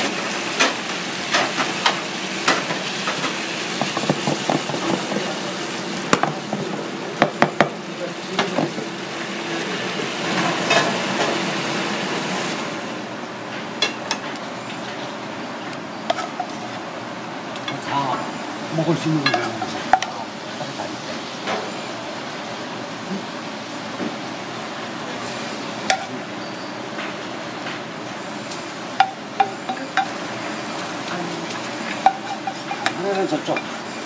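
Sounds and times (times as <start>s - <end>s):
sauce sizzling and bubbling in a pan: 0.0s - 14.2s, 15.9s - 34.0s.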